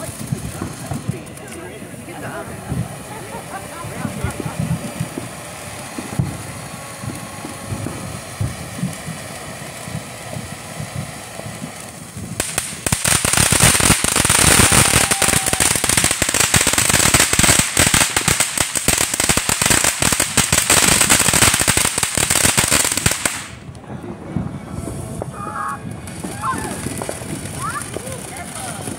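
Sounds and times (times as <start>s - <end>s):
firework fountain hissing: 0.0s - 28.9s.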